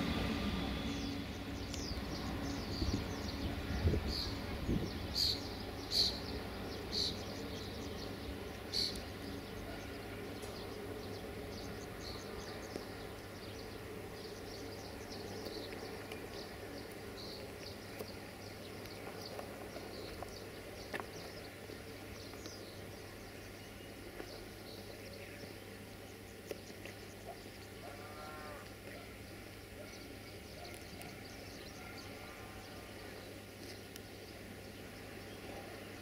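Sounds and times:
diesel locomotive idling: 0:00.0 - 0:26.2
small birds chirping: 0:00.1 - 0:36.0.

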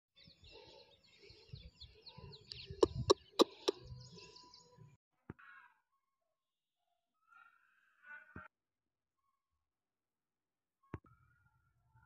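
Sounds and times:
small birds chirping: 0:00.2 - 0:05.0.

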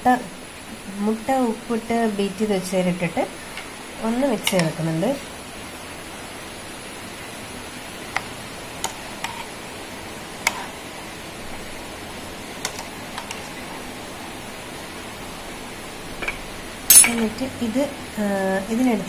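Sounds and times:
steady hiss: 0:00.0 - 0:19.0.

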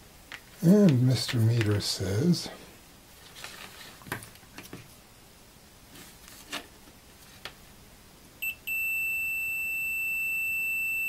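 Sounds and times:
multimeter steady high beep: 0:08.4 - 0:11.0.

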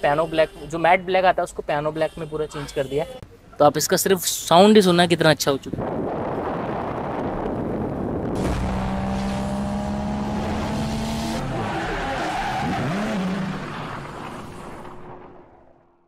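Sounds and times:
car engine revving: 0:08.4 - 0:15.8.

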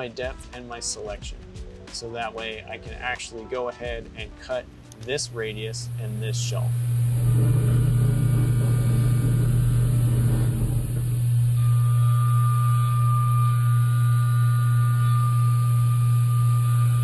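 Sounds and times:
machining spindle humming: 0:05.0 - 0:17.0
steady high tone: 0:05.1 - 0:17.0
rush of cutting and coolant: 0:05.3 - 0:17.0.

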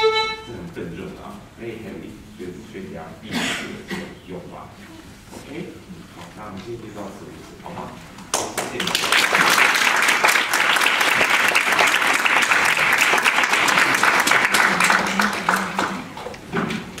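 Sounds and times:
audience applauding: 0:08.3 - 0:16.4.

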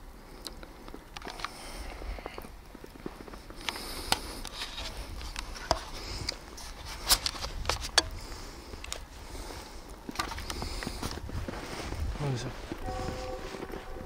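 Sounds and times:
camcorder handling clicks and rustling: 0:07.0 - 0:08.1.

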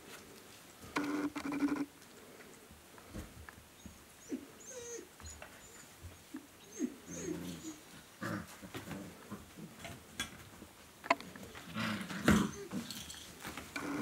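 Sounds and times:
soft rustling: 0:00.0 - 0:01.0
puppy whimpering and yipping: 0:04.2 - 0:05.9, 0:06.6 - 0:07.8, 0:12.4 - 0:12.8.

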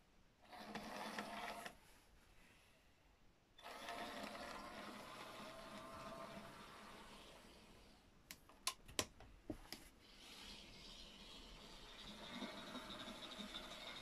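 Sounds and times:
model train motor whirring: 0:03.6 - 0:08.0, 0:10.2 - 0:14.0.

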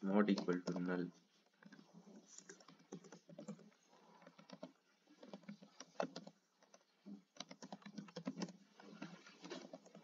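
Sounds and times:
keyboard typing clicks: 0:00.3 - 0:01.0, 0:02.4 - 0:08.6.

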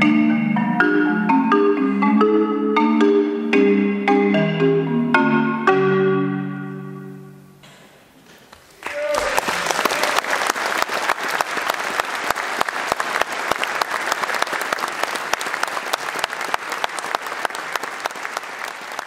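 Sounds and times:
audience applauding: 0:08.5 - 0:19.0.

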